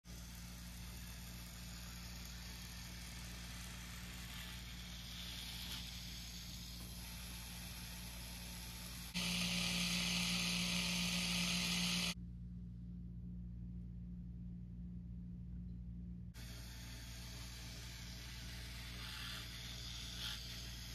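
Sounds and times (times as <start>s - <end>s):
toy car motor whirring: 0.0s - 12.2s, 16.4s - 20.9s
steady low hum: 0.1s - 20.9s.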